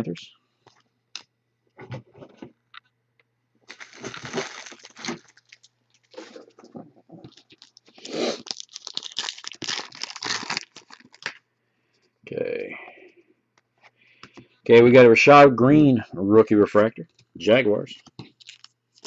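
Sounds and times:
foil wrapper crinkling and tearing: 0:03.7 - 0:06.5, 0:07.3 - 0:11.4, 0:18.3 - 0:19.0.

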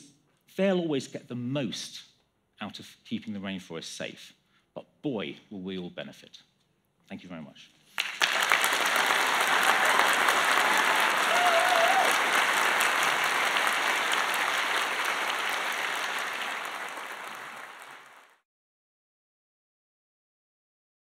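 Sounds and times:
audience applauding: 0:08.0 - 0:18.4.

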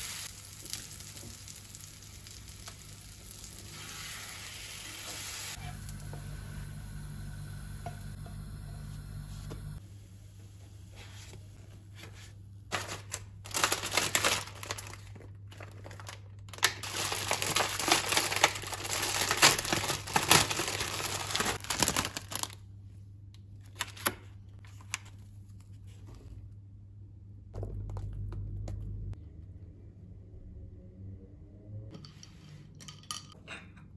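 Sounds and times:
plastic packaging crinkling: 0:12.7 - 0:22.6.

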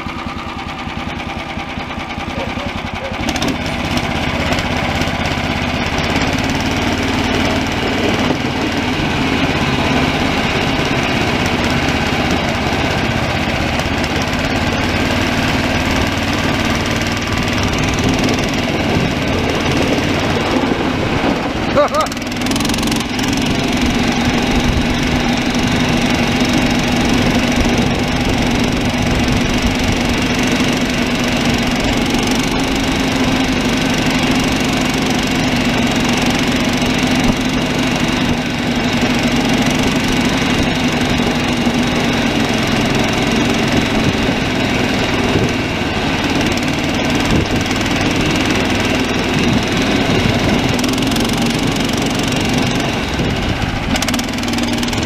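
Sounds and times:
small gasoline engine running: 0:00.0 - 0:55.0.

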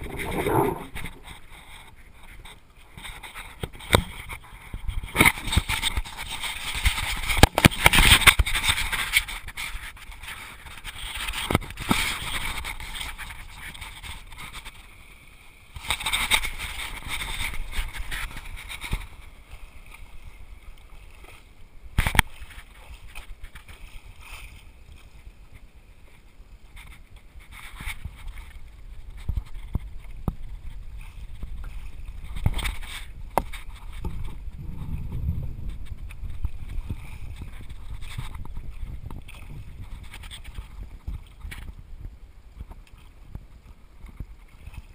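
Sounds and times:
water splashing around board: 0:00.0 - 0:15.0.

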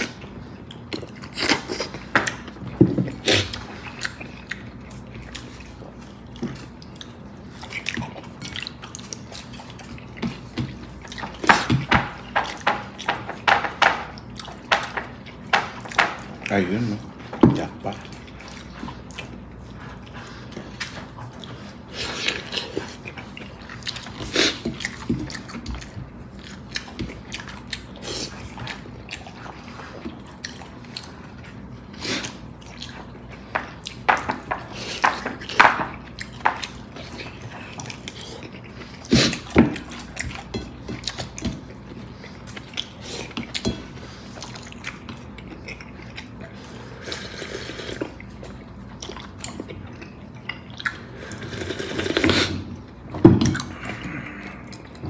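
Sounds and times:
chewing: 0:00.0 - 0:55.0
slurping broth: 0:46.6 - 0:48.2, 0:51.0 - 0:52.7.

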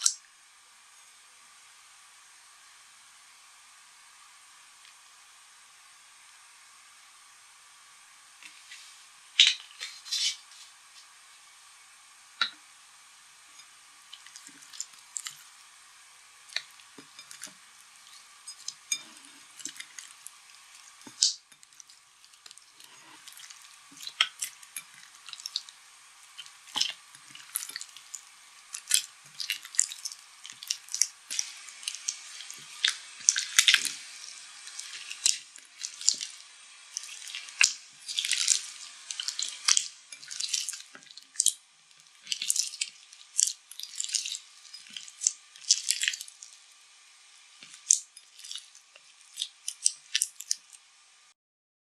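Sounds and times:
slime squelching and popping: 0:14.1 - 0:15.5, 0:16.5 - 0:46.6, 0:47.6 - 0:50.8.

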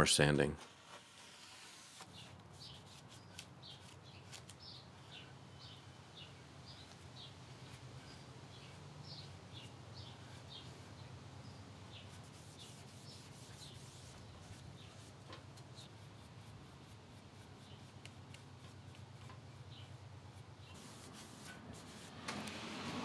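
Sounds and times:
rag rubbing on wood: 0:12.1 - 0:15.1.

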